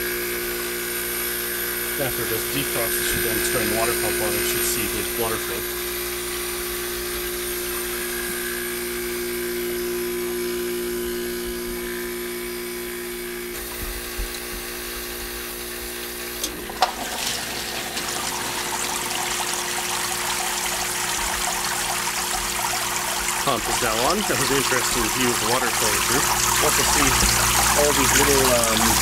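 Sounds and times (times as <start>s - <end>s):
ice maker humming: 0.0s - 29.0s
water pump running: 0.0s - 29.0s
water trickling and splashing: 16.6s - 29.0s.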